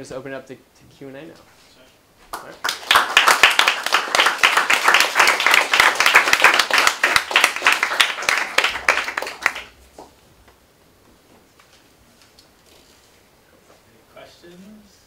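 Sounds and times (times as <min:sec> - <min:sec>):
group of people applauding: 0:02.3 - 0:09.8.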